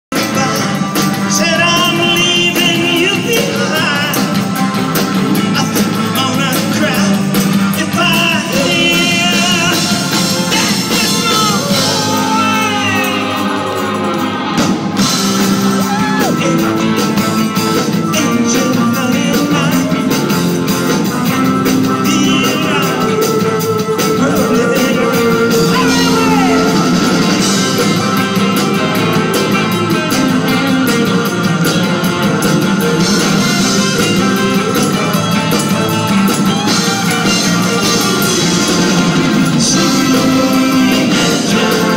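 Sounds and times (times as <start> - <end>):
drums: 0.0 - 41.9
man singing into a microphone: 0.1 - 4.4, 5.4 - 14.0, 15.9 - 20.4, 21.4 - 27.7, 39.4 - 41.9
electric guitars: 0.1 - 41.9.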